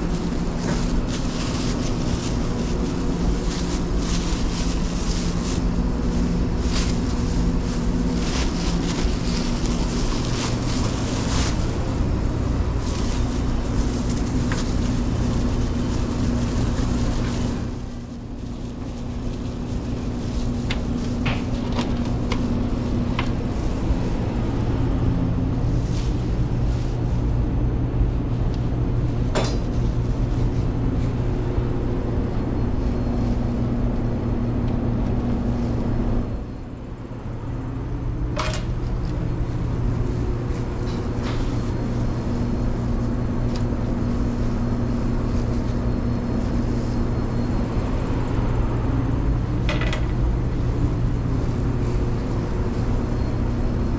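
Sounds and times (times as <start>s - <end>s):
kitchen equipment humming: 0.0s - 53.9s
trays and utensils clattering: 38.4s - 39.0s, 49.7s - 50.2s.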